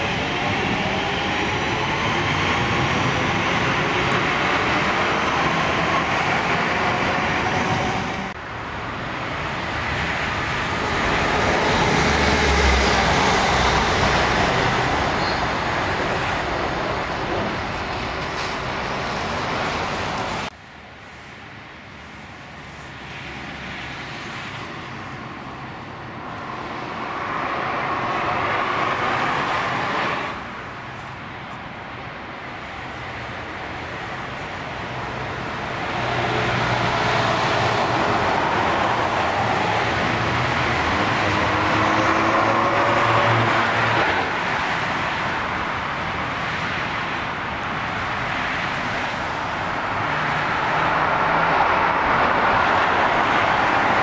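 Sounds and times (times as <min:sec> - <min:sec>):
diesel train engine pulling away: 0:00.0 - 0:20.5
train approaching: 0:00.0 - 0:54.0
train rumble and rail noise: 0:00.0 - 0:54.0.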